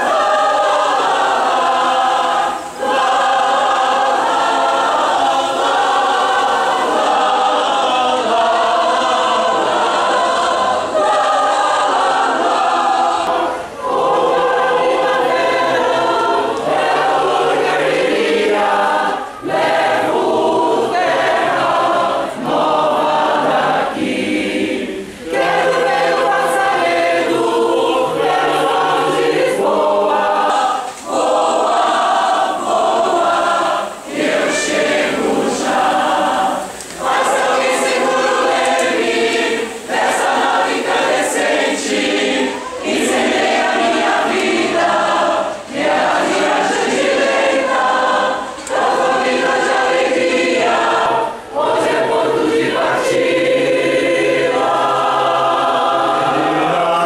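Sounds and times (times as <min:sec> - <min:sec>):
mixed choir singing: 0:00.0 - 0:57.0.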